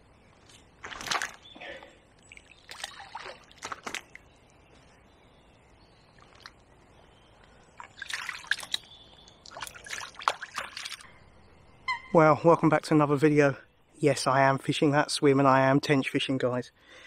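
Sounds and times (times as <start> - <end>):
water splashing and dripping: 0.4 - 4.5, 6.1 - 6.8, 7.4 - 11.1.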